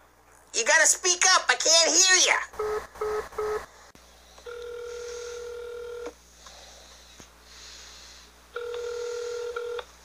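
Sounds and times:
telephone ringback tone: 2.6 - 3.6, 4.5 - 6.1, 8.6 - 9.9.

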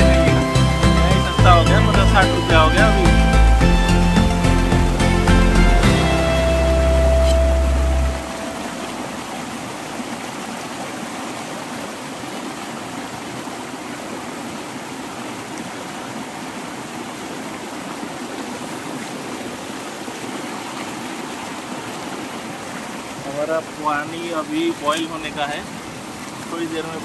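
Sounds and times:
music track: 0.0 - 9.1
river rushing over rocks: 2.2 - 27.0.

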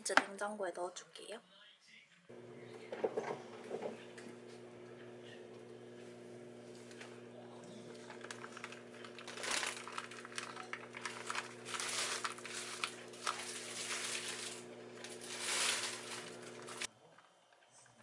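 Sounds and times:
rice paper crinkling: 7.8 - 16.9.

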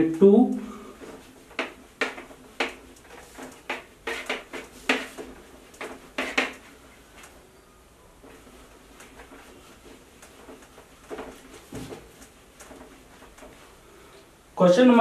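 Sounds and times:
eraser rubbing on whiteboard: 1.6 - 6.7.

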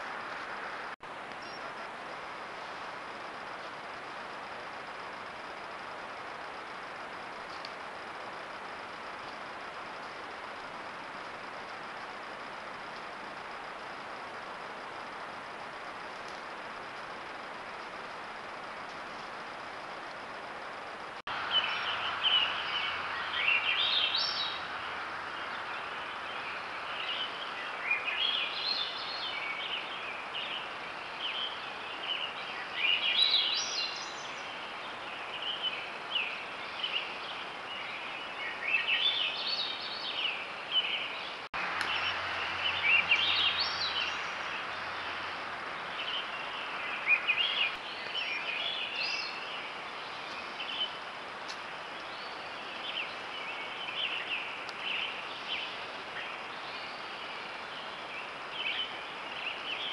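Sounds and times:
songbird singing: 0.0 - 59.9
steady hiss: 0.0 - 59.9.

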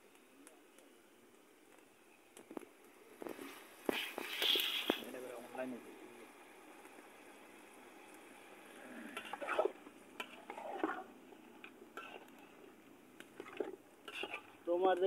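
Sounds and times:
ladle scraping and clinking pot: 13.4 - 14.5.

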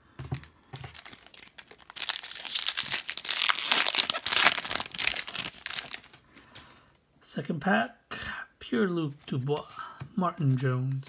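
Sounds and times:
foil wrapper crinkling: 0.4 - 6.2.

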